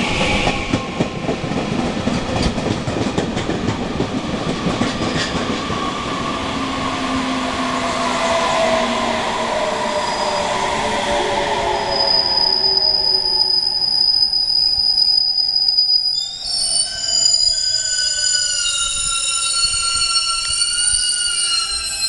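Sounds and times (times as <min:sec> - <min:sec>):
train brakes squealing: 0:09.6 - 0:22.0.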